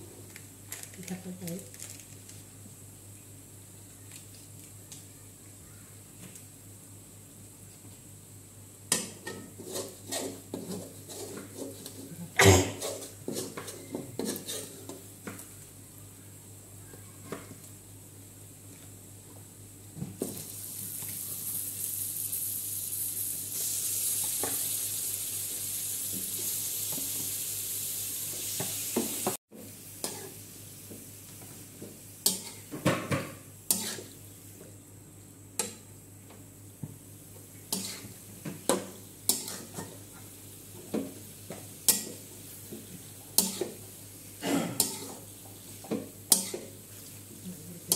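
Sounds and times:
metal spatula scraping wok: 0:09.2 - 0:14.9, 0:33.7 - 0:34.1, 0:37.8 - 0:38.1, 0:39.3 - 0:39.9
meat sizzling in hot oil: 0:20.3 - 0:30.6.

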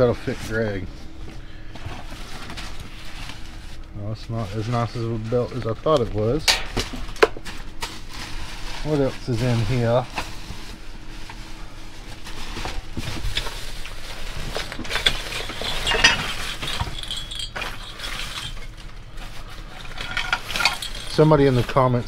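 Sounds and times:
junk clinking and knocking: 0:14.4 - 0:22.0.

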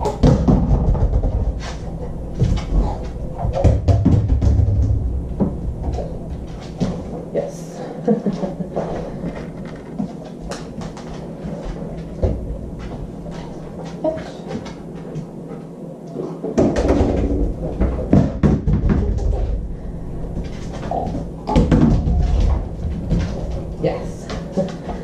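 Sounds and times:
refrigerator door knocks and rattles: 0:03.5 - 0:05.0, 0:16.6 - 0:19.2.

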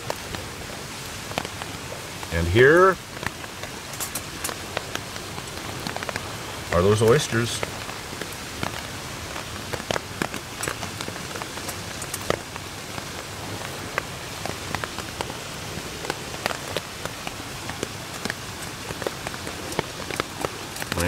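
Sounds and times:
rain pattering on a tarp: 0:00.0 - 0:21.0.

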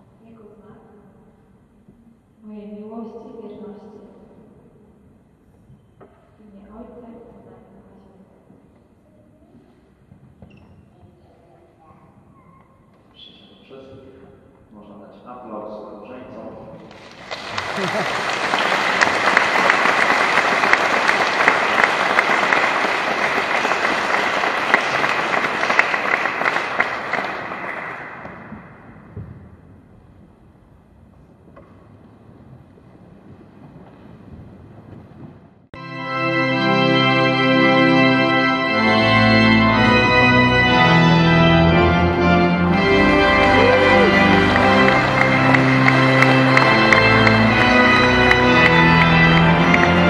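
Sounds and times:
crowd applauding in church: 0:16.7 - 0:29.0, 0:38.1 - 0:50.0
church organ chords: 0:35.8 - 0:50.0.

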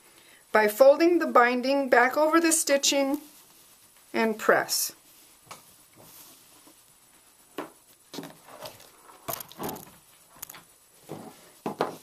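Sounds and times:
fabric rustling: 0:02.9 - 0:12.0.

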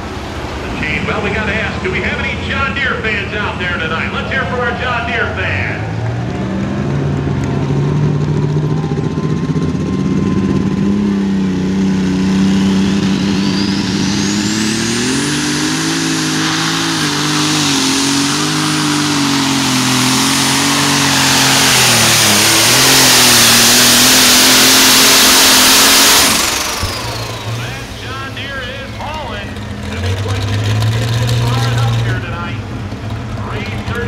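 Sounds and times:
tractor engine running: 0:00.0 - 0:34.0
high turbo whistle: 0:12.5 - 0:18.5.

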